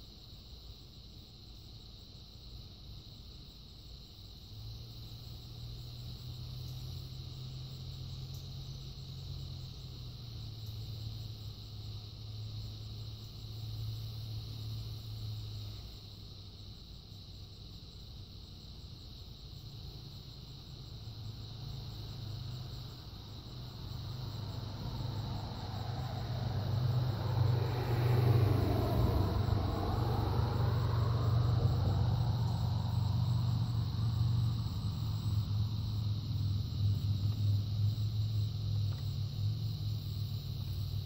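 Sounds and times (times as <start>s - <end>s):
motor vehicle passing: 21.0s - 41.0s.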